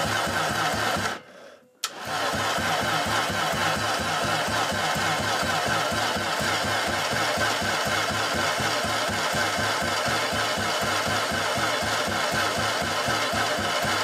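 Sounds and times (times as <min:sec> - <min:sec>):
engine cranking on starter motor: 0:00.0 - 0:14.0.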